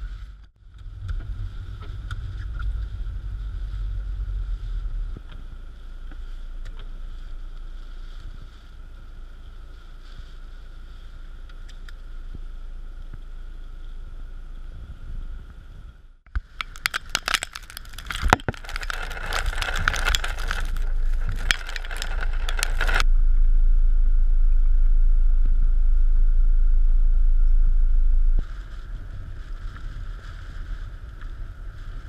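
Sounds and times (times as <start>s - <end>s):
faint steady whine: 0.0s - 32.0s
wind and road rumble: 0.0s - 32.0s.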